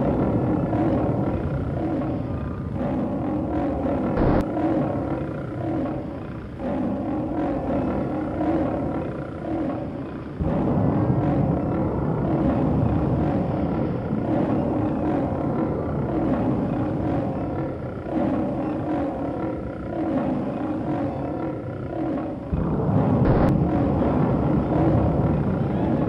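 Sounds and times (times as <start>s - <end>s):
monster roaring and growling: 0.0s - 26.0s.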